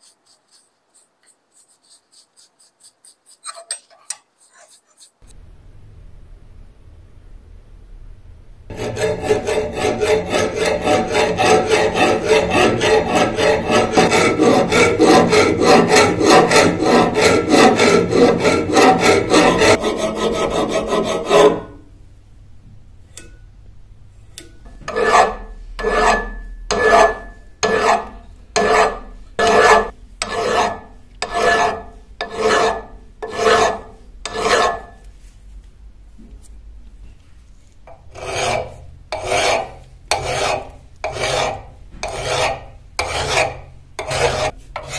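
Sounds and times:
abrasive scraping on knife: 0.0s - 5.3s, 8.7s - 21.8s, 24.8s - 35.0s, 37.9s - 44.9s.

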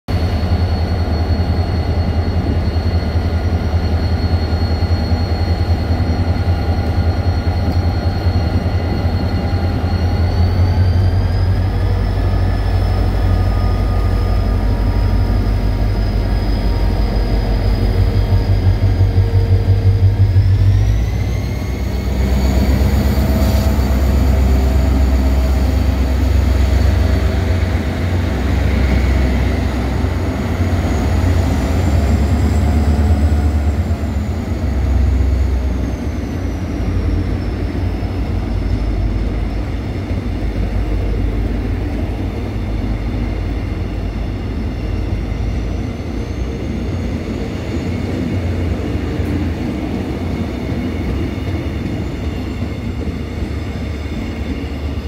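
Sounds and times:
heavy locomotive engine rumble: 0.1s - 55.0s
high whine rising in pitch: 0.1s - 55.0s
train coaches rolling past: 0.1s - 55.0s.

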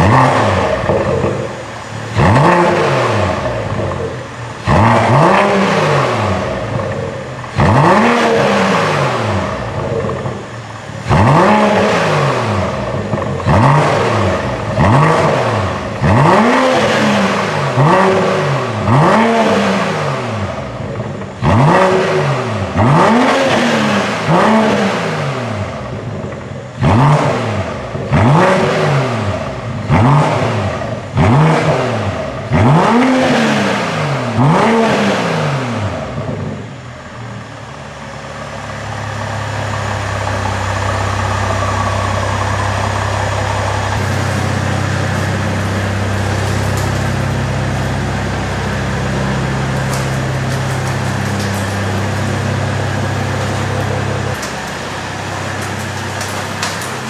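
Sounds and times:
steady low engine drone: 0.0s - 18.9s, 35.8s - 57.0s
car engine revving: 0.0s - 57.0s.

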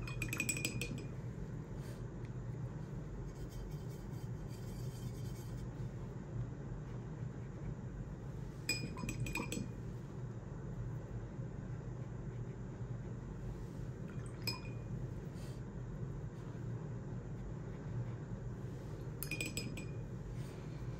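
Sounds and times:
paintbrush clinking on glass cup: 0.0s - 1.2s, 8.6s - 9.8s, 14.2s - 14.9s, 19.2s - 20.1s
brush scratching in paint pan: 3.3s - 5.8s.

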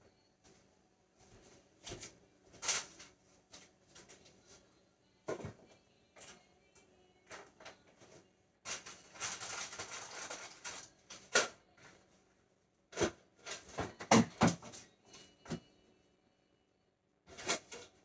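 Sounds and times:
rustling: 7.7s - 12.0s
knocks and clunks of cookware: 13.0s - 14.8s.

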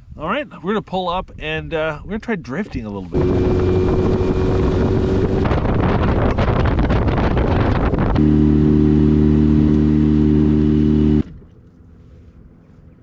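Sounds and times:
wind: 0.0s - 13.0s
outboard motor running: 3.1s - 12.9s.

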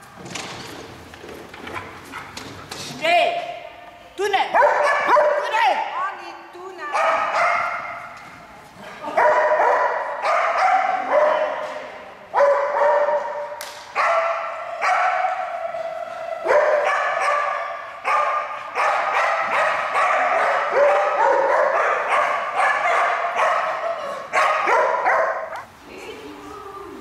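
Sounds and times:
dog barking in echoing hall: 4.5s - 5.8s, 6.8s - 8.2s, 9.0s - 25.7s.

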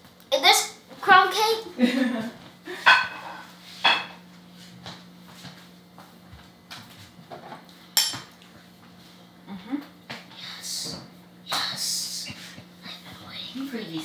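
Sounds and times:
faint steady hum: 0.0s - 14.0s
cutlery clinking on plates: 2.9s - 4.2s, 7.4s - 8.4s.

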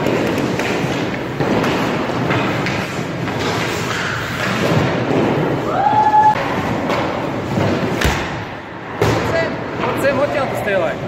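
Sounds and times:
skates scraping on ice: 0.0s - 5.7s.

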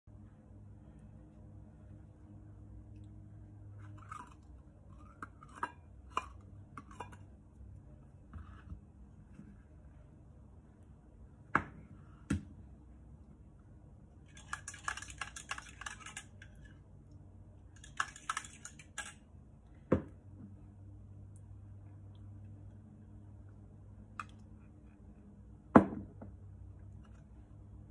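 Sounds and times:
metal bowl knocking and clinking: 5.0s - 7.2s.

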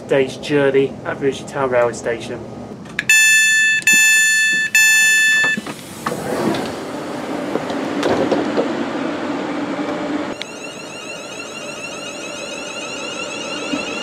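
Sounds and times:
train door alert beeping: 3.0s - 5.8s, 10.3s - 14.0s
power doors opening: 3.0s - 8.8s.

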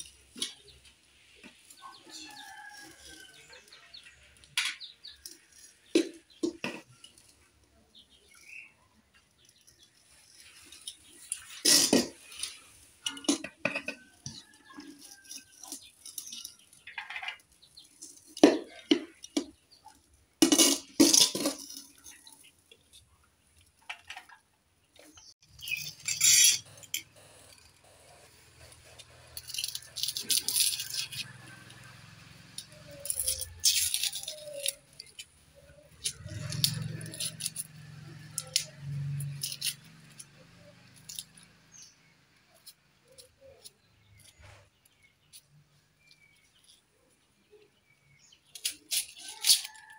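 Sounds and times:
metal spatula scraping a wok: 10.4s - 16.7s, 25.6s - 34.8s.

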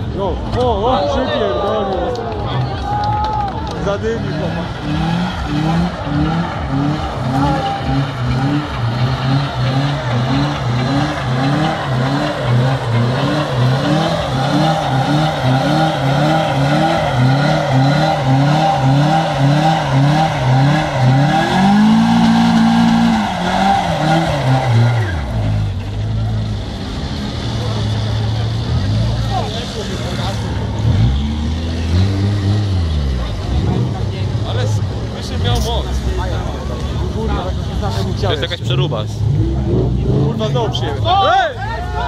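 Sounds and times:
car engine revving high: 3.8s - 36.5s, 37.2s - 41.3s
tyre squealing: 5.3s - 25.8s.

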